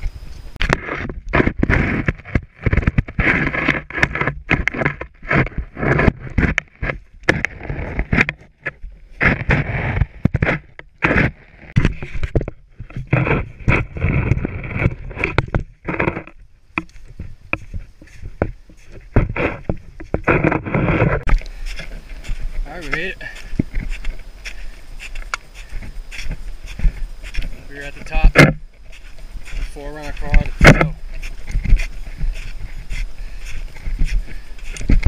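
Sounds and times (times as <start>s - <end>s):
boots crunching in snow: 16.9s - 35.0s.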